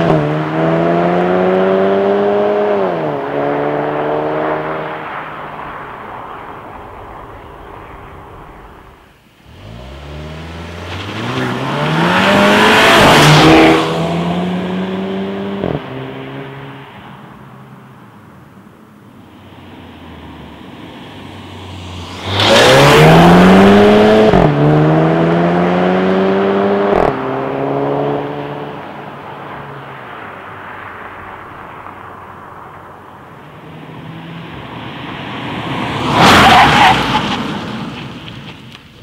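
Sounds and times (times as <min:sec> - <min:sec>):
car engine revving hard: 0:00.0 - 0:04.9, 0:09.5 - 0:16.2, 0:21.6 - 0:28.6
tyre and road noise: 0:00.0 - 0:39.0.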